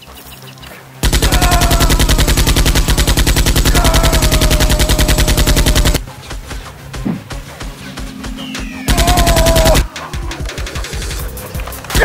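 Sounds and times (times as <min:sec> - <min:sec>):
machine-gun fire: 0:01.0 - 0:06.0, 0:08.9 - 0:09.9
toy blaster firing: 0:01.0 - 0:06.0, 0:08.9 - 0:09.9.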